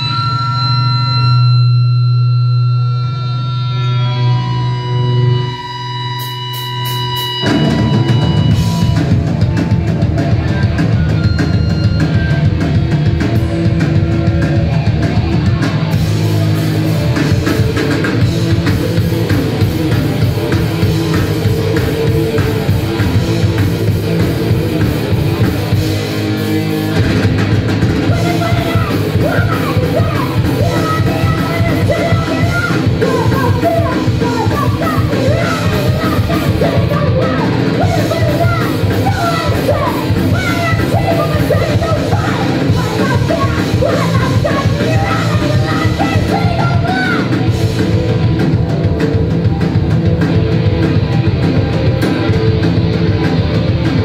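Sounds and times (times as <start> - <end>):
rock band playing: 0.0 - 54.0
person singing: 28.1 - 47.5.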